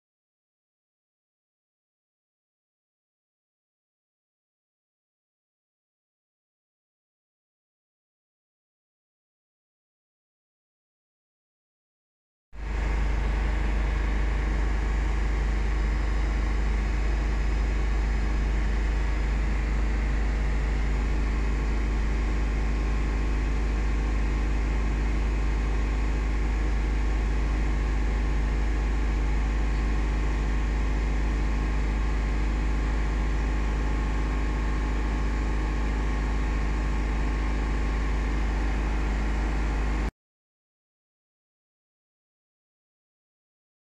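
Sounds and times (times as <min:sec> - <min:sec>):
car engine rumbling: 0:32.1 - 0:40.1.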